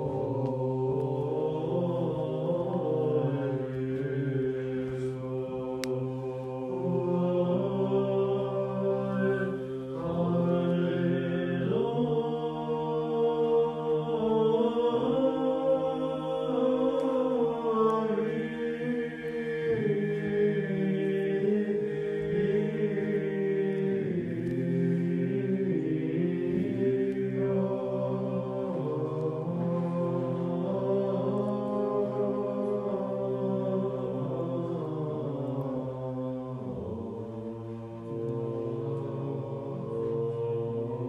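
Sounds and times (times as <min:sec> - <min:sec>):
choir chanting unaccompanied: 0:00.0 - 0:41.0.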